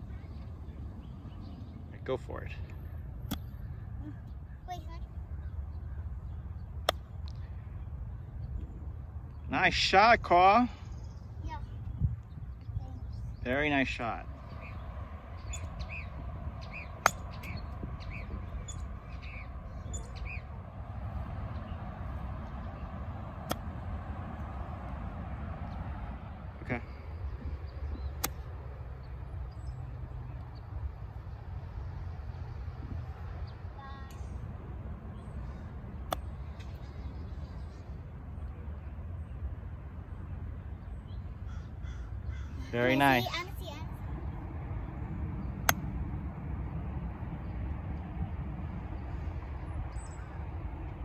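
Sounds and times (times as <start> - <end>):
low outdoor rumble: 0.0 - 51.0
golf club striking ball: 3.2 - 3.6, 17.0 - 17.6, 23.3 - 23.9.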